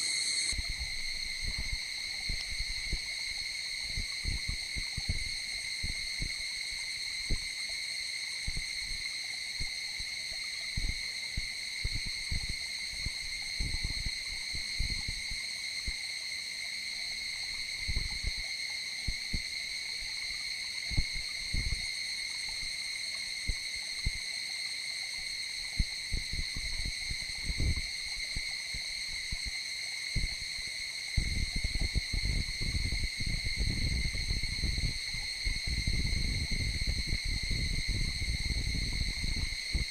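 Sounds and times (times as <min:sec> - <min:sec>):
high-pitched insect chorus: 0:00.0 - 0:39.9
wind rumble on microphone: 0:00.5 - 0:06.4, 0:08.4 - 0:09.0, 0:10.8 - 0:16.0, 0:17.8 - 0:18.4, 0:19.1 - 0:19.5, 0:20.9 - 0:21.9, 0:25.8 - 0:29.5, 0:30.2 - 0:30.5, 0:31.2 - 0:39.9.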